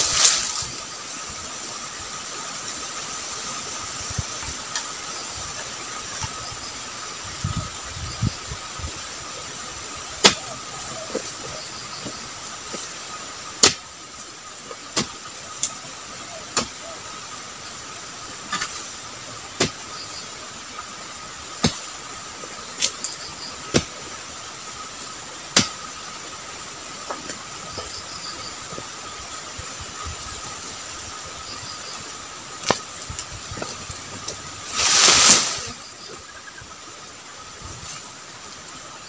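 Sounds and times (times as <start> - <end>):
rustling crash: 0.0 - 0.8, 32.6 - 35.8
steady background hiss: 0.0 - 39.0
chisel chopping strikes: 10.2 - 10.5, 13.6 - 13.8, 16.5 - 16.8, 21.6 - 21.8, 25.5 - 25.8.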